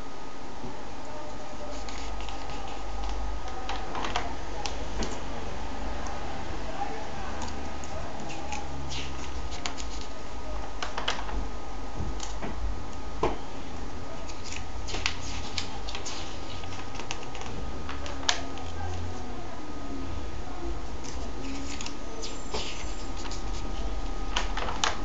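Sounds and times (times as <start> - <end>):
steady low hum: 0.0 - 25.0
pages crinkling and turning: 1.7 - 4.3, 8.3 - 10.2, 14.3 - 18.8, 21.0 - 22.0, 22.6 - 25.0.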